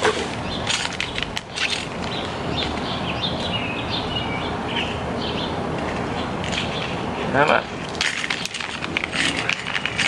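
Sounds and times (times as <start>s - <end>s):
small birds chirping: 0.4s - 8.8s
plastic packet crinkling: 7.9s - 10.0s.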